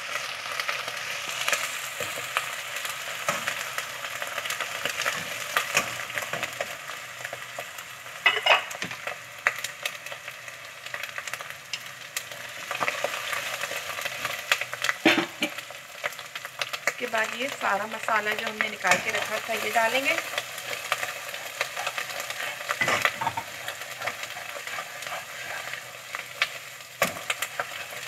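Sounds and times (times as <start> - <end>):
onions sizzling in hot oil: 0.0 - 28.0
wooden spoon stirring and scraping: 18.4 - 28.0.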